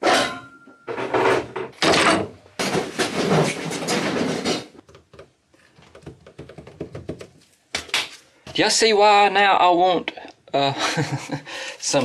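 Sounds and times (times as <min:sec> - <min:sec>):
tools clattering on workbench: 0:00.0 - 0:04.8.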